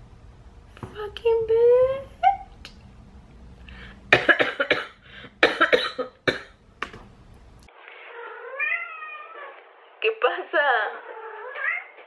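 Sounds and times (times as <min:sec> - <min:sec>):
woman coughing: 0:04.1 - 0:06.6.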